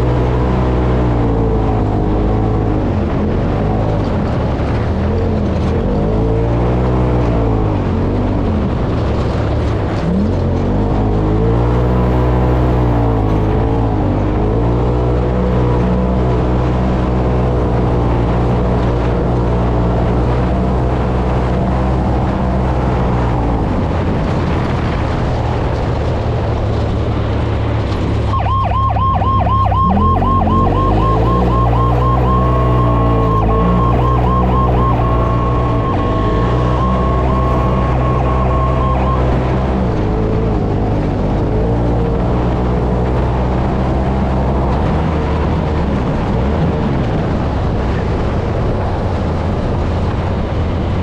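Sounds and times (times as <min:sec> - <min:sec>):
warbling electronic siren: 0:00.0 - 0:02.8, 0:28.2 - 0:40.8
utv engine running hard: 0:00.0 - 0:51.0.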